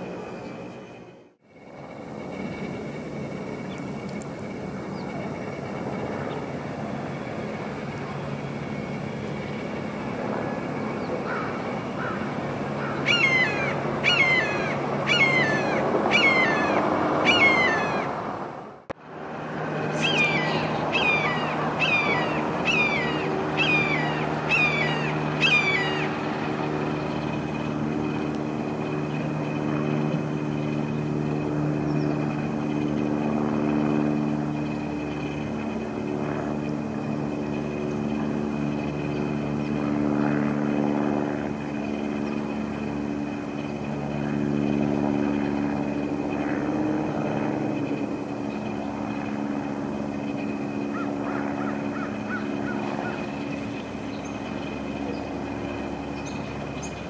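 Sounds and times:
low engine drone: 0.0s - 57.0s
hawk screaming: 12.8s - 18.1s, 19.9s - 26.1s.

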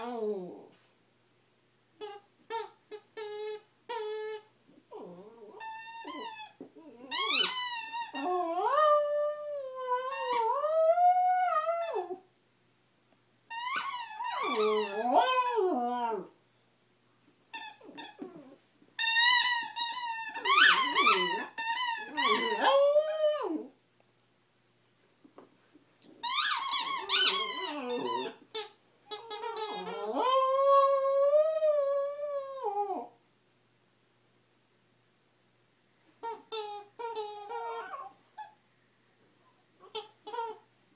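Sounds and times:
dog howling: 14.3s - 16.3s
rubber chicken toy squawking: 36.2s - 38.1s.

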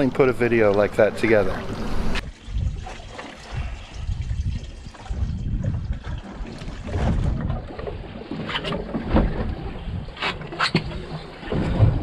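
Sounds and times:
water lapping against boat hull: 0.0s - 12.0s.

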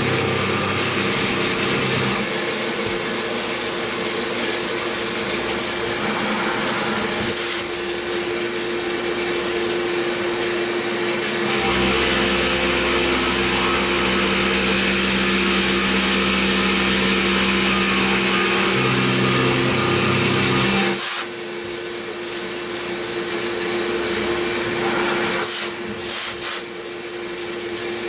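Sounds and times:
mill cutting metal: 0.0s - 21.4s, 22.0s - 26.8s
spinning tool and coolant hiss: 3.4s - 9.7s, 21.0s - 21.4s, 25.0s - 26.8s.

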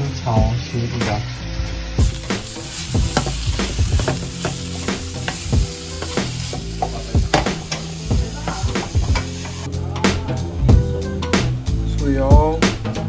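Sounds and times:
food sizzling in a frying pan: 0.0s - 10.0s
wooden spatula knocking on pan: 3.0s - 9.3s.

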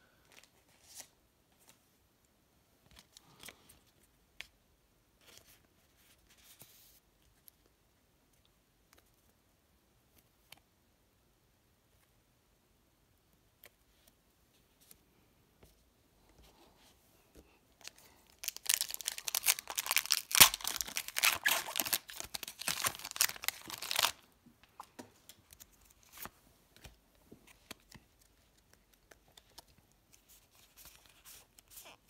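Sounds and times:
foil wrapper tearing and crinkling: 18.3s - 24.2s.

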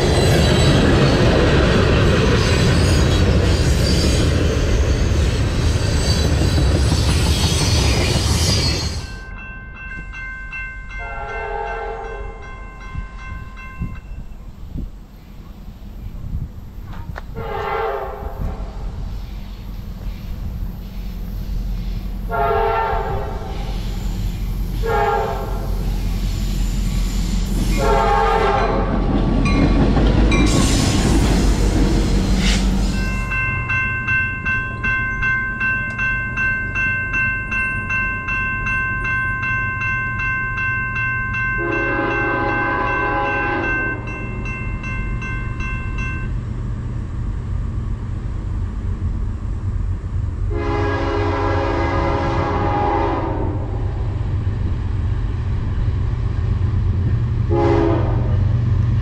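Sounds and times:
passing train rumbling: 0.0s - 59.0s
train horn: 11.0s - 12.4s, 17.0s - 18.9s, 22.3s - 23.9s, 24.8s - 25.9s, 27.4s - 29.0s, 41.6s - 44.1s, 50.5s - 53.9s, 57.5s - 58.5s
bell ringing: 33.0s - 46.4s.

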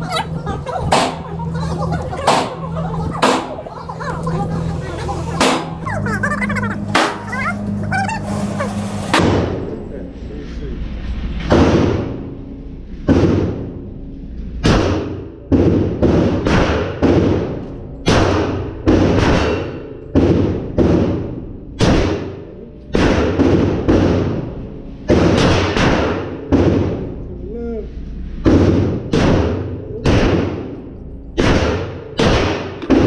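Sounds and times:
pistol shots echoing indoors: 14.6s - 27.1s, 28.4s - 30.8s, 31.4s - 33.0s.

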